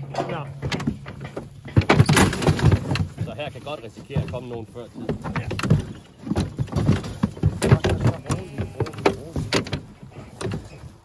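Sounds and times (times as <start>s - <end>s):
metal gates knocking and rattling: 0.0s - 10.8s.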